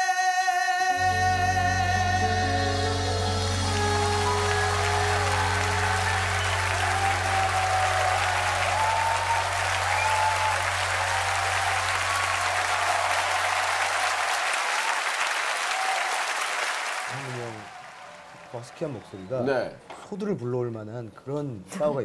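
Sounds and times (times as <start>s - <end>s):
audience applauding and cheering: 2.1s - 19.4s.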